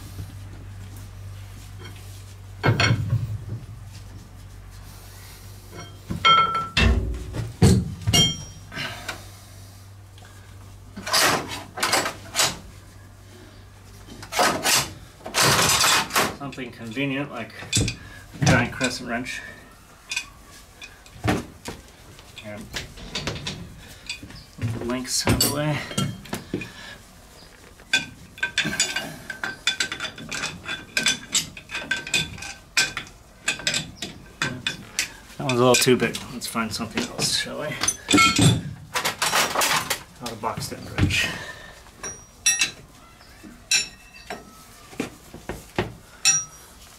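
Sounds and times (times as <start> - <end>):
wrenches scraping and shuffling: 1.6 - 3.2, 5.6 - 9.2, 10.2 - 12.7, 14.0 - 46.9
metal tools clanking: 2.6 - 3.2, 5.7 - 9.2, 11.0 - 12.6, 14.1 - 16.8, 17.5 - 21.2, 22.3 - 26.8, 27.8 - 44.6, 46.1 - 46.8
steel wrench clinking on metal: 42.0 - 42.8, 43.7 - 44.4, 46.2 - 46.6.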